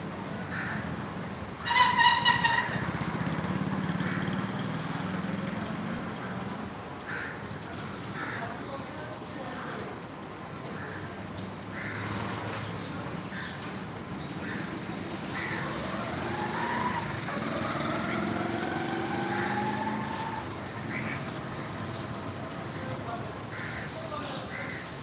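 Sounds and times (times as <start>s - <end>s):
street traffic: 0.0s - 25.0s
vehicle engine accelerating: 2.2s - 6.8s, 11.9s - 13.2s, 14.0s - 23.4s.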